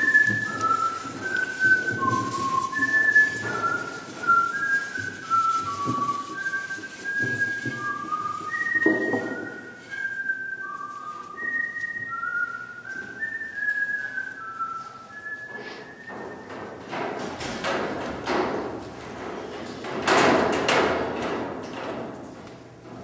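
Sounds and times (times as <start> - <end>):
knocks and rustles: 0.0 - 10.1, 16.2 - 23.0
person whistling a slow tune: 0.0 - 16.6.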